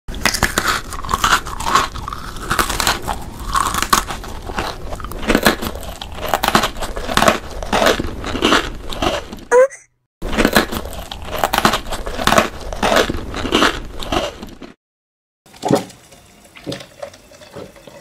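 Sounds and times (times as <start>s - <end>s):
biscuit sticks crunching: 0.1s - 9.5s, 10.2s - 14.8s.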